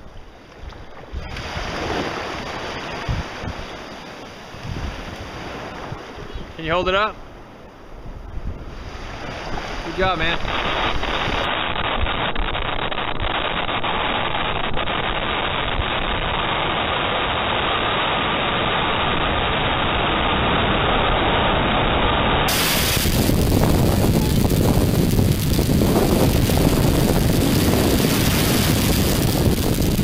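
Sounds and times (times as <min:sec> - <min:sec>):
wind on microphone: 0:00.0 - 0:30.0
small surf breaking: 0:01.1 - 0:06.2, 0:08.7 - 0:13.0, 0:22.4 - 0:30.0.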